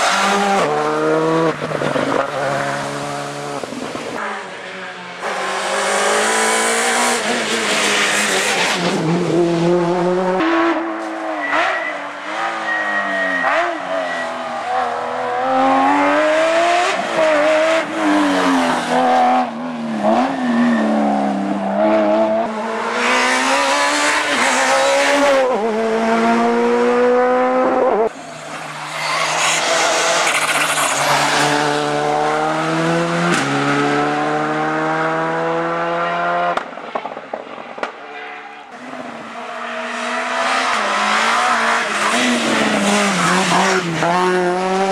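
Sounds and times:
rally car engines revving: 0:00.0 - 0:37.9, 0:38.7 - 0:44.9
short thin squeal: 0:11.2 - 0:14.4.

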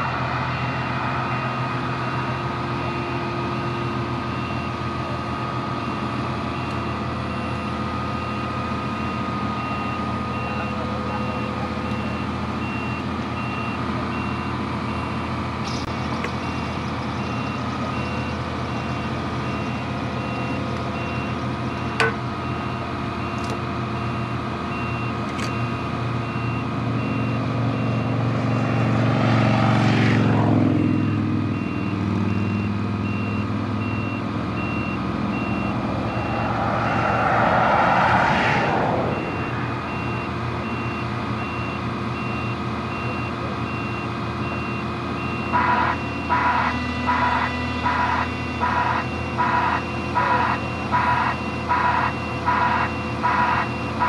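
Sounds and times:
diesel engine running: 0:00.0 - 0:54.0
vehicles passing: 0:00.0 - 0:54.0
high warning beeps: 0:30.8 - 0:37.3, 0:39.1 - 0:46.4.

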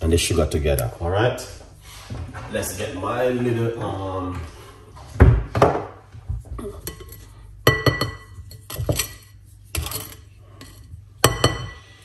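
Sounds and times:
utensils and bowls knocking: 0:06.8 - 0:12.0.

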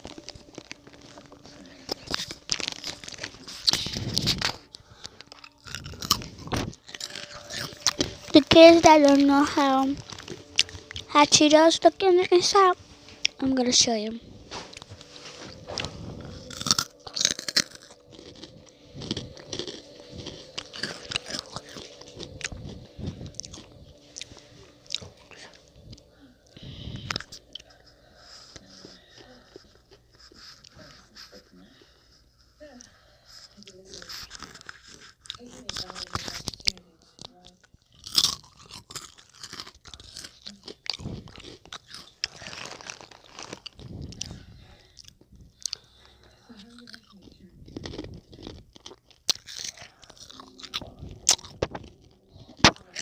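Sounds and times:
crisp snacks crunching: 0:00.0 - 0:31.3, 0:33.3 - 0:53.0
chewing: 0:00.0 - 0:53.0.

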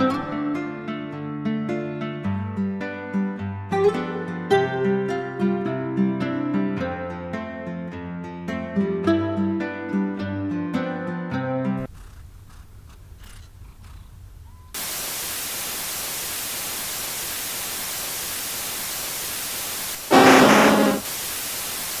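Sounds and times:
tv static hiss: 0:14.8 - 0:22.0.

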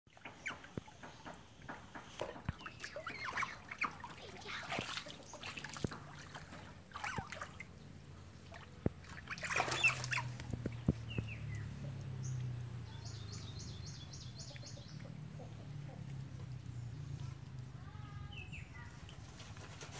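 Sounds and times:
water splashing and sloshing: 0:00.1 - 0:19.9
otters squeaky chirping: 0:00.2 - 0:01.2, 0:02.5 - 0:05.6, 0:09.1 - 0:11.8.

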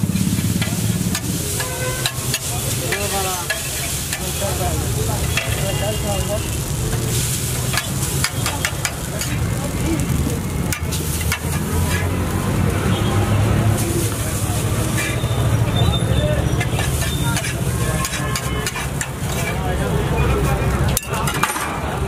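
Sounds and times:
noodles sizzling on a griddle: 0:00.0 - 0:22.0
metal spatula clacking on iron: 0:00.1 - 0:04.4, 0:05.2 - 0:05.7, 0:06.9 - 0:09.6, 0:10.6 - 0:12.2, 0:16.5 - 0:19.6, 0:20.8 - 0:21.8.

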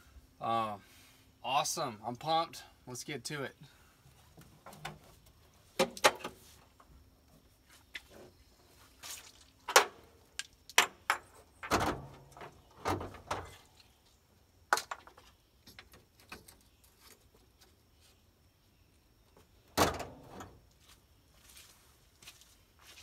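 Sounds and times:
clanks and knocks in engine bay: 0:10.8 - 0:13.5, 0:19.8 - 0:20.5.

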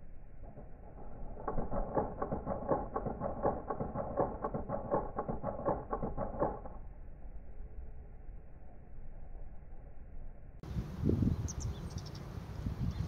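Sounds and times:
rapid clicks: 0:00.4 - 0:06.8.

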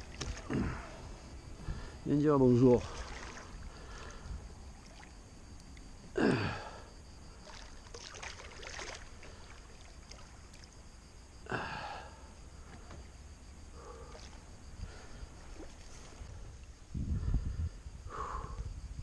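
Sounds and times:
person exhaling with strain: 0:00.4 - 0:01.0, 0:06.2 - 0:06.9, 0:11.5 - 0:12.2
fish splashing: 0:02.8 - 0:03.7, 0:07.4 - 0:10.7.

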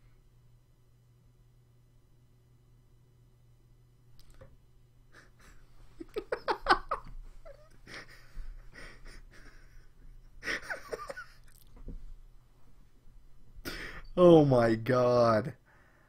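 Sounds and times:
man laughing hard: 0:05.1 - 0:11.4.

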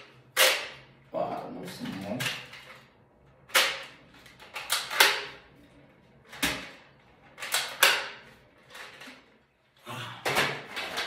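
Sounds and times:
toy blaster plastic snaps: 0:03.5 - 0:05.4, 0:07.4 - 0:08.2.

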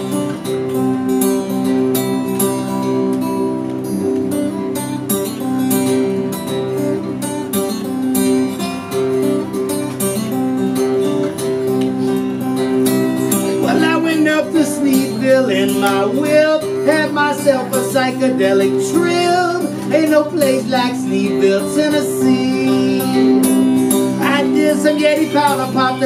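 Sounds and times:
acoustic guitar strumming: 0:00.0 - 0:26.0
man singing: 0:13.5 - 0:26.0.

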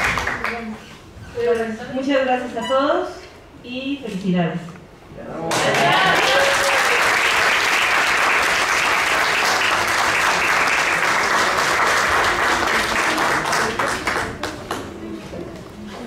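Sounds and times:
audience applauding: 0:00.0 - 0:00.7, 0:05.5 - 0:14.9.

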